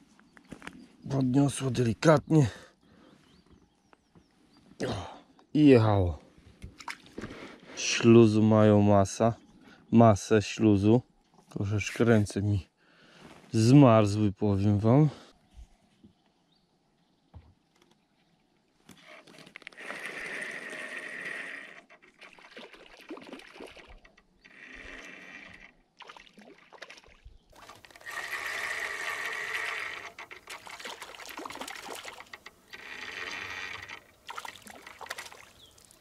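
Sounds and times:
water trickling and splashing: 0:21.9 - 0:24.2, 0:25.9 - 0:36.0.

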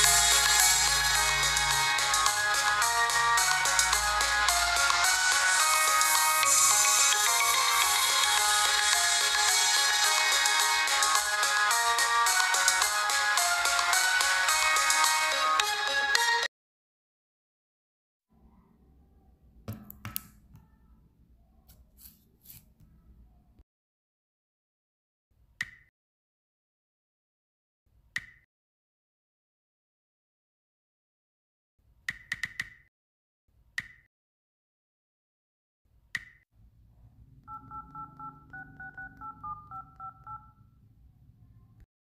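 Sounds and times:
fingers tapping touchscreen phone: 0:37.5 - 0:40.6.

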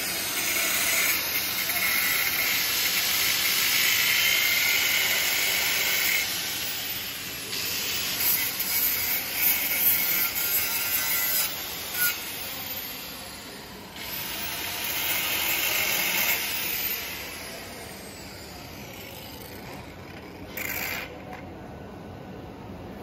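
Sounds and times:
angle grinder grinding metal: 0:00.0 - 0:13.2.

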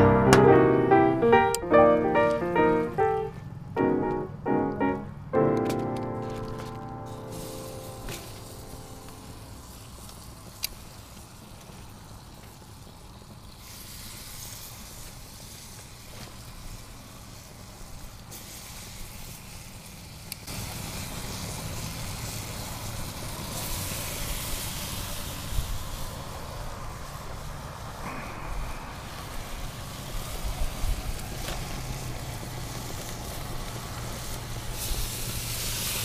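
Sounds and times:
ribs sizzling on grill: 0:07.1 - 0:28.0, 0:28.6 - 0:36.0.

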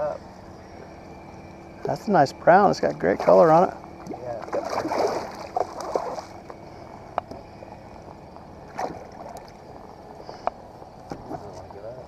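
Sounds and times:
water splashing and sloshing: 0:02.8 - 0:09.9
water lapping: 0:02.8 - 0:11.4.

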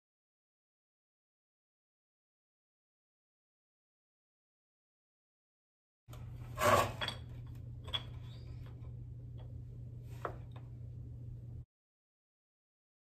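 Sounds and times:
steady low hum: 0:06.1 - 0:11.7.

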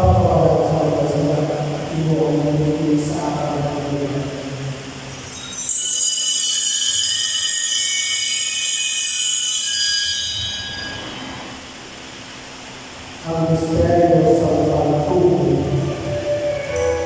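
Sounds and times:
altar bells jangling: 0:05.1 - 0:11.2.

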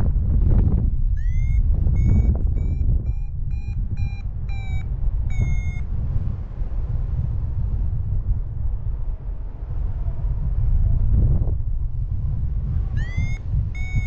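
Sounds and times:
wind on microphone: 0:00.0 - 0:14.0
variometer short high beeps: 0:01.2 - 0:05.9, 0:13.0 - 0:14.0.

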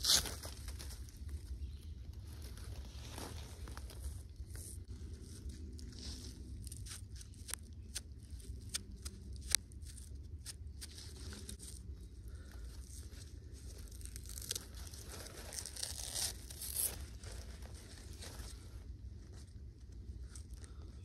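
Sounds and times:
bark fibres snapping: 0:06.6 - 0:11.0.

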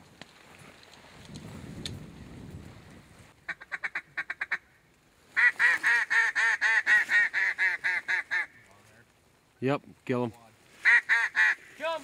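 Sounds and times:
duck call clucking and quacking: 0:03.5 - 0:04.7, 0:05.4 - 0:08.6, 0:10.8 - 0:11.8.

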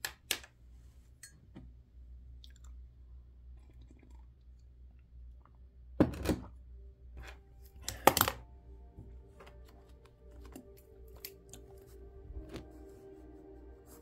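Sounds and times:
faint background music: 0:05.8 - 0:14.0.

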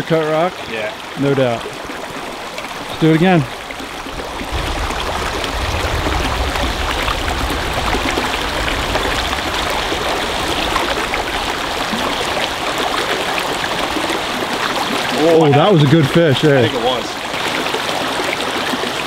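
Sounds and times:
stream water rushing: 0:00.0 - 0:19.0
low rumble: 0:03.7 - 0:14.1.

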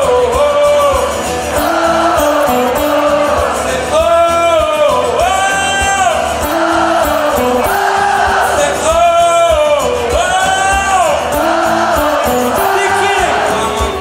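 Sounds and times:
person singing long held notes: 0:00.0 - 0:04.2, 0:06.3 - 0:08.9, 0:11.2 - 0:14.0
country band with acoustic guitars: 0:00.0 - 0:14.0.

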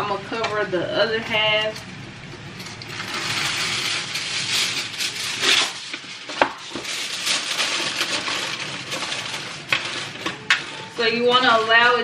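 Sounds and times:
aluminum foil crinkling: 0:02.5 - 0:12.0.

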